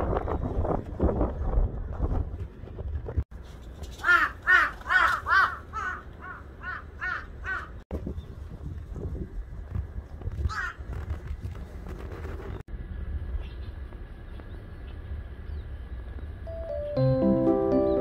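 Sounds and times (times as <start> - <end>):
crow cawing: 4.0 - 7.8.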